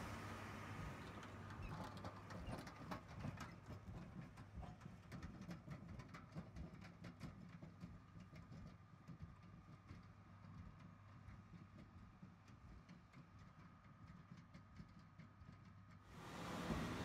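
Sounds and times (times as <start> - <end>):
tractor engine droning: 16.2 - 17.0.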